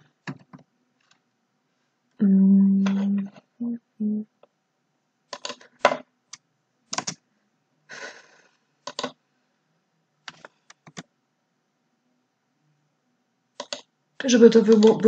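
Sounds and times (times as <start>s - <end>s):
person humming: 2.2s - 4.3s
keyboard keystrokes: 5.3s - 7.2s, 8.9s - 9.2s, 10.3s - 11.1s, 13.6s - 13.9s, 14.6s - 15.0s.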